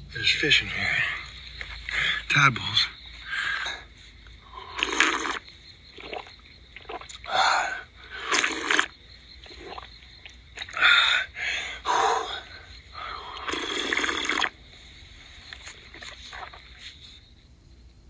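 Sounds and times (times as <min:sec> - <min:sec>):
gasping breaths: 0:03.2 - 0:04.9, 0:10.7 - 0:14.4
man slurping and gulping water: 0:03.2 - 0:14.6, 0:15.5 - 0:16.9.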